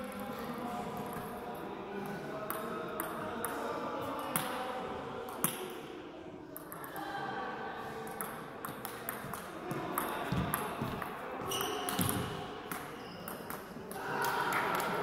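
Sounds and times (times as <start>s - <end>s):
low hall murmur: 0.0s - 15.0s
table tennis ball bouncing: 8.1s - 13.6s.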